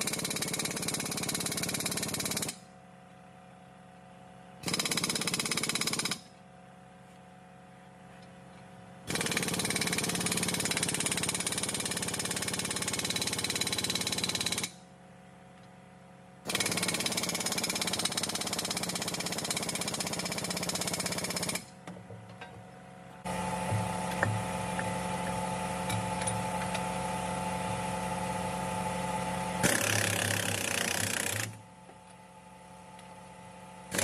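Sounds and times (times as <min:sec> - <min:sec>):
impact wrench hammering: 0:23.6 - 0:26.9, 0:29.6 - 0:31.6.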